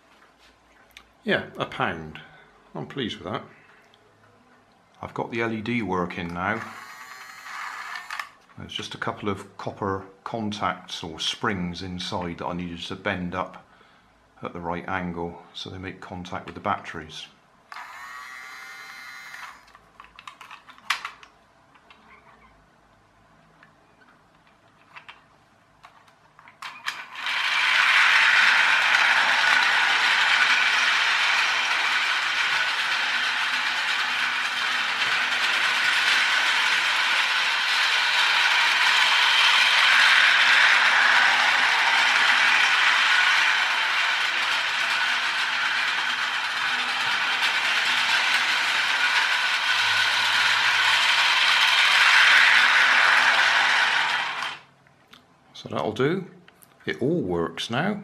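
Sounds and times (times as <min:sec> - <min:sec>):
clicks: 0:06.2 - 0:08.6
toy train motor whirring: 0:06.5 - 0:08.4, 0:17.7 - 0:21.2, 0:26.6 - 0:54.7.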